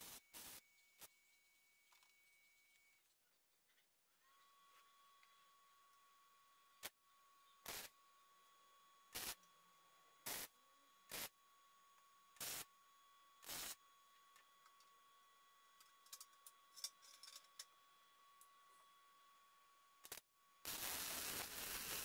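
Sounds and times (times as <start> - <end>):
arc welder crackle: 0.0 - 1.1, 7.6 - 8.0, 9.1 - 9.5, 10.2 - 10.5, 11.1 - 11.4, 12.4 - 12.7, 13.4 - 13.8, 20.0 - 22.0.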